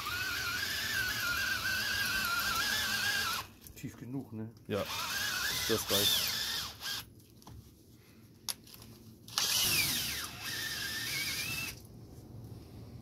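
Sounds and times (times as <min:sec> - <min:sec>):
cordless drill boring metal: 0:00.0 - 0:03.5, 0:04.8 - 0:07.1, 0:09.3 - 0:11.8
drill click: 0:09.3 - 0:11.8.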